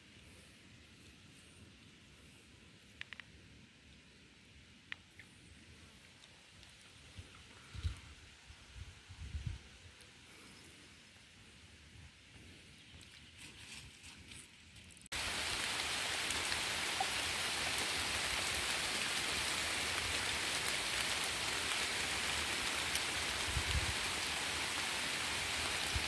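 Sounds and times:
faint rustle: 0:12.3 - 0:19.0
heavy rain on river surface: 0:15.1 - 0:26.0.

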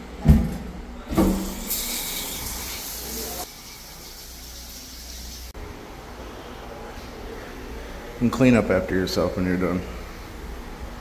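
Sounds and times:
shower spraying water: 0:01.3 - 0:05.6.

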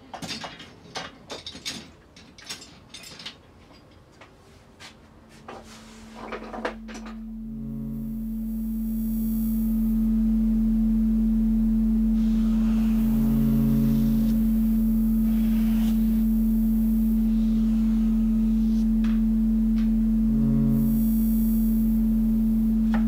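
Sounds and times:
low ambient music drone: 0:05.9 - 0:23.0.

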